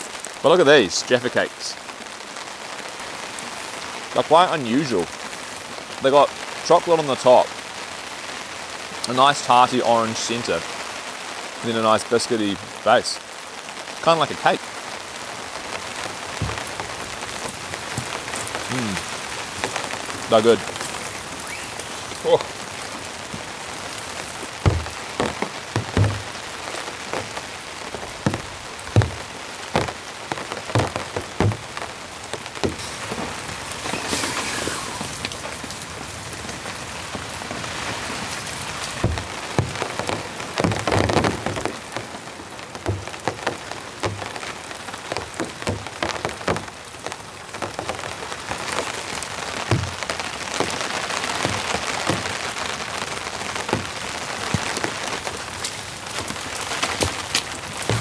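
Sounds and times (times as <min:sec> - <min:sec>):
steady rain: 0:00.0 - 0:58.0
heavy drops knocking: 0:16.3 - 0:19.0, 0:24.3 - 0:33.4, 0:39.0 - 0:41.6, 0:42.8 - 0:44.4.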